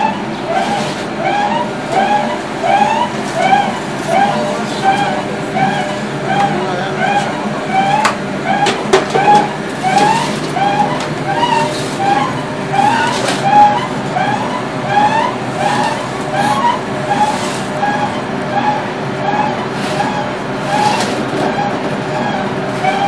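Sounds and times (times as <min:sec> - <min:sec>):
motor hum: 0:00.0 - 0:23.0
rising machine squeak: 0:00.0 - 0:23.0.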